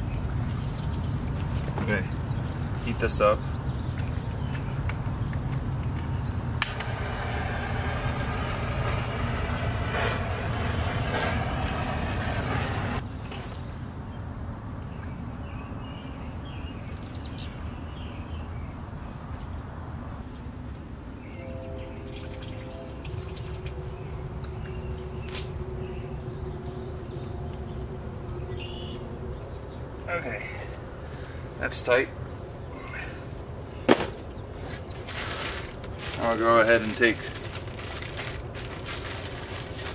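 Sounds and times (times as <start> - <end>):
heat gun blowing: 6.6 - 13.0.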